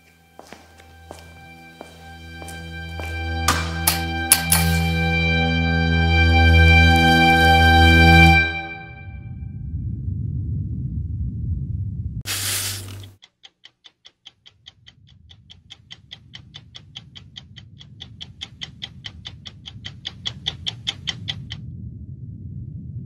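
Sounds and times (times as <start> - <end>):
low steady drone: 0.0 - 12.2, 17.9 - 23.0
burst of hiss: 12.3 - 13.2
rapid even ticking: 13.2 - 21.6.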